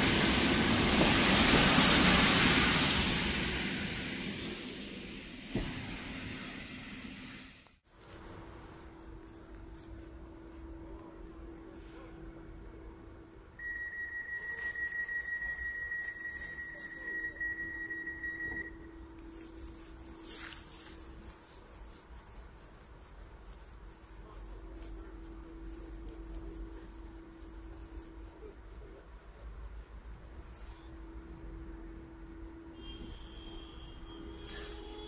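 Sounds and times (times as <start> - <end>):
electric train hum: 0.0 - 7.1
high steady beep: 13.6 - 19.0.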